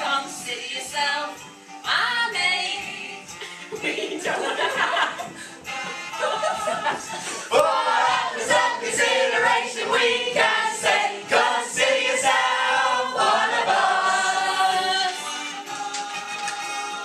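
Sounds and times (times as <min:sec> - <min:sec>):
chorus singing a show tune: 0:06.2 - 0:17.0.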